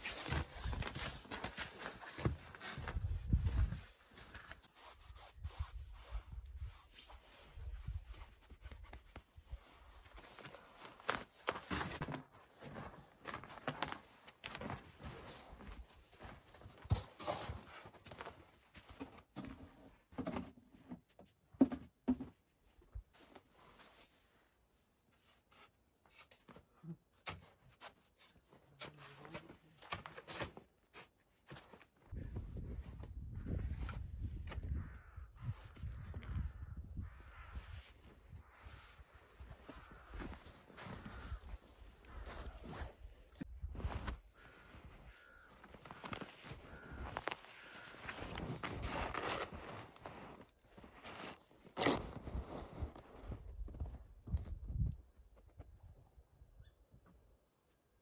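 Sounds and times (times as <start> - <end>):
snow scraping and crunching: 0.0 - 8.5, 37.2 - 53.9.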